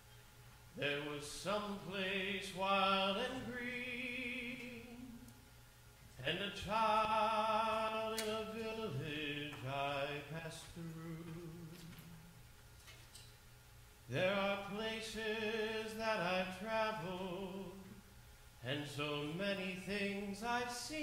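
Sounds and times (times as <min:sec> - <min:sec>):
man singing slow song: 0:00.8 - 0:05.4, 0:06.2 - 0:12.4, 0:14.1 - 0:18.0, 0:18.6 - 0:21.0.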